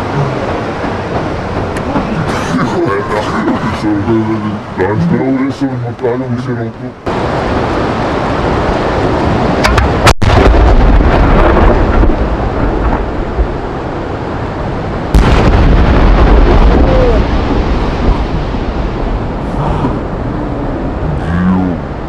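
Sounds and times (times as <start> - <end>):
firework launch blast: 15.1 - 17.8
firework bursting with boom: 15.1 - 18.8.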